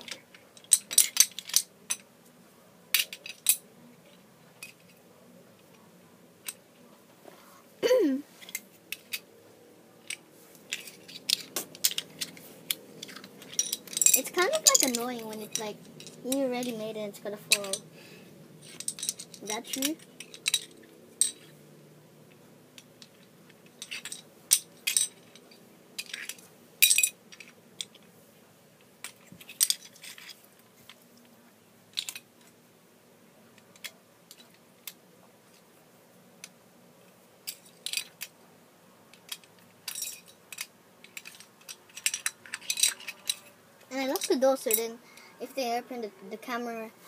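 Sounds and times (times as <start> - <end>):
wooden blocks clacking: 10.0 - 16.8, 18.6 - 21.6.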